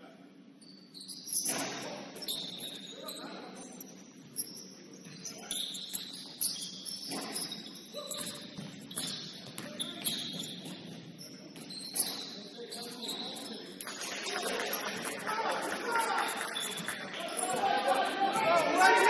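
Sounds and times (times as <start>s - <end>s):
sneakers squeaking on court: 0.6s - 3.3s, 3.9s - 13.9s.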